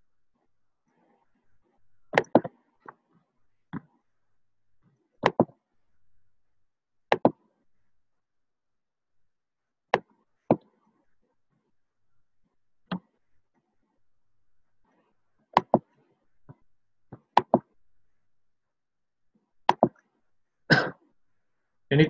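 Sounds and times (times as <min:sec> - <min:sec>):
sharp clicks and knocks: 0:19.7 - 0:20.0.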